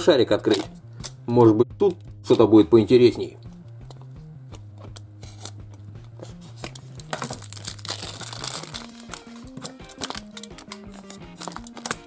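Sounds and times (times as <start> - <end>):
background music with bass line: 0.0 - 12.0
plastic wrapping crinkling and tearing: 4.8 - 12.0.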